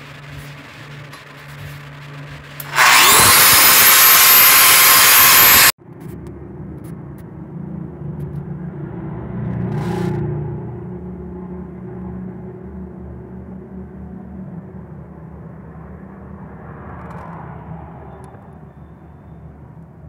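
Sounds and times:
low hum: 0:00.0 - 0:19.6
angle grinder whining on steel: 0:00.8 - 0:05.8.

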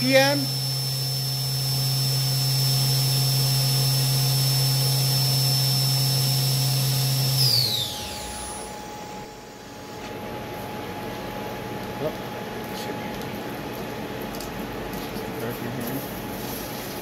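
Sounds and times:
low machine hum: 0:00.0 - 0:05.3, 0:06.6 - 0:16.9
spindle high whine: 0:00.0 - 0:13.3.

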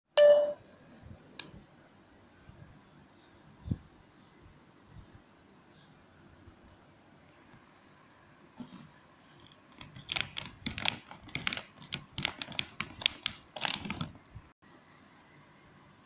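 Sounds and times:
plastic packaging crinkling: 0:09.5 - 0:14.2
scissors snipping plastic bag: 0:09.8 - 0:14.1.

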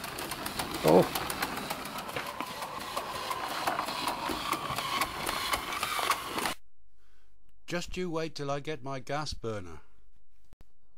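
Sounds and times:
model locomotive mechanism clicking: 0:00.0 - 0:06.6.

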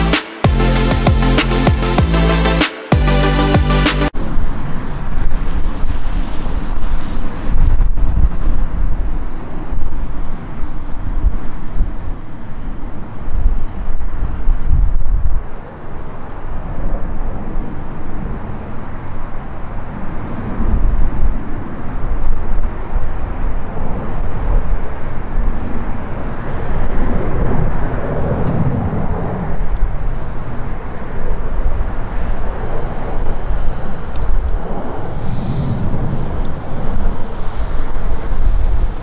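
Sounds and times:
jet engines rumbling on take-off: 0:22.7 - 0:39.0.

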